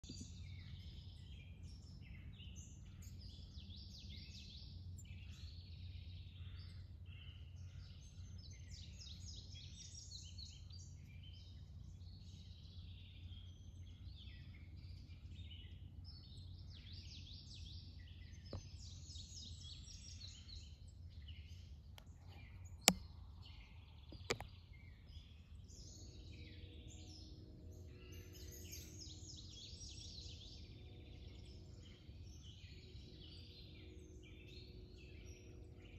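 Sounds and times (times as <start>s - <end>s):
birds singing and chirping: 0.0s - 35.9s
faint steady hum: 0.0s - 35.9s
low outdoor rumble: 0.0s - 35.9s
sharp clicks: 22.8s - 23.1s, 24.1s - 24.5s.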